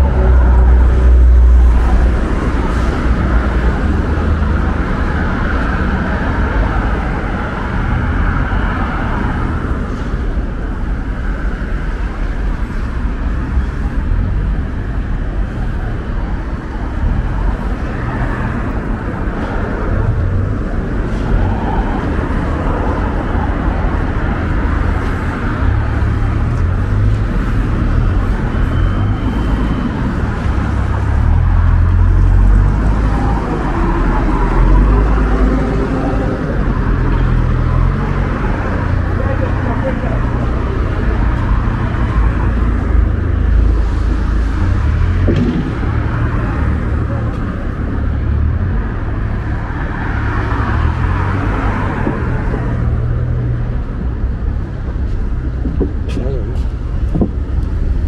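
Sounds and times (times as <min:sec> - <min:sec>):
passing cars: 0:00.0 - 0:58.0
deep rumble: 0:30.0 - 0:49.7.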